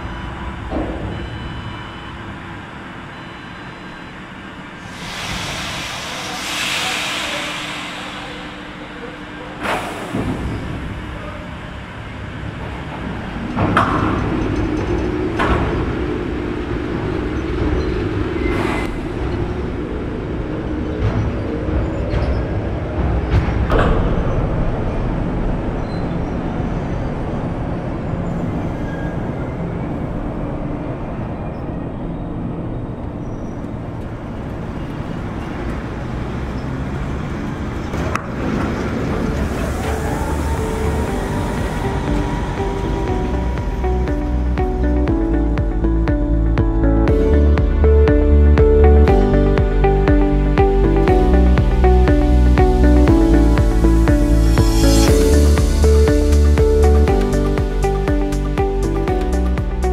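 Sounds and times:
locomotive running hum: 0:00.0 - 0:59.9
air hiss: 0:04.8 - 0:10.4.

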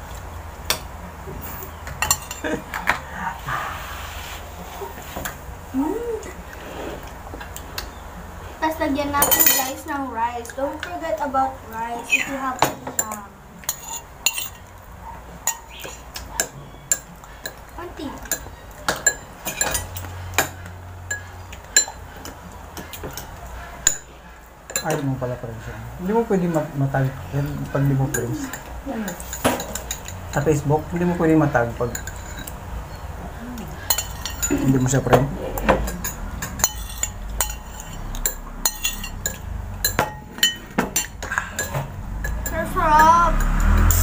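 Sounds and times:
spoon clinking on ceramic plates: 0:01.9 - 0:03.0, 0:09.2 - 0:09.8, 0:12.6 - 0:14.7, 0:15.4 - 0:24.1, 0:24.7 - 0:25.2, 0:27.4 - 0:30.7, 0:31.5 - 0:33.0, 0:33.7 - 0:42.6.

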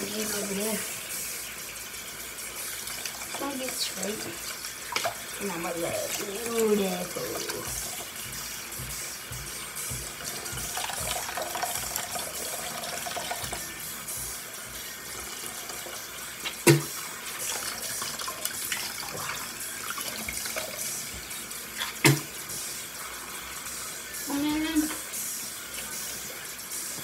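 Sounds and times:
faucet water splashing into basin: 0:00.0 - 0:27.0.

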